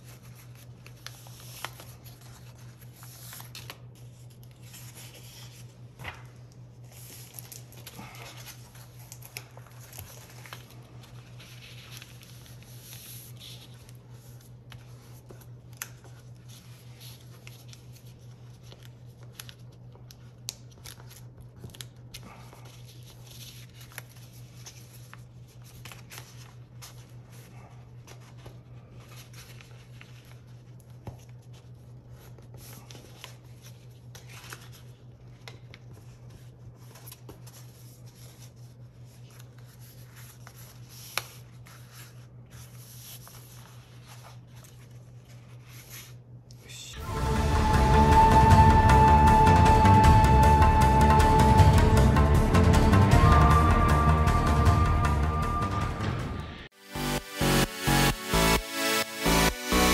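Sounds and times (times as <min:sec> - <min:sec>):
sharp paper crackles: 0:00.0 - 0:46.3
paper rustling and crinkling: 0:00.0 - 0:46.4.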